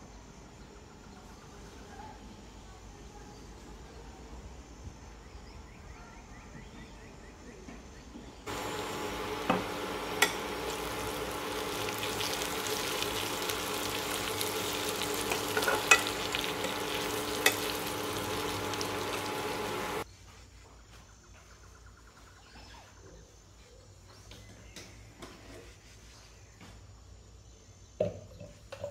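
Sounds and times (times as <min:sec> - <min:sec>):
potatoes sizzling in a pan: 0:08.5 - 0:20.0.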